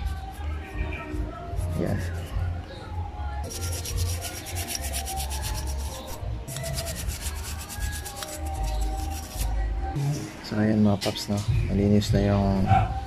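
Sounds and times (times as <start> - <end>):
toothbrush scrubbing metal: 3.5 - 9.5.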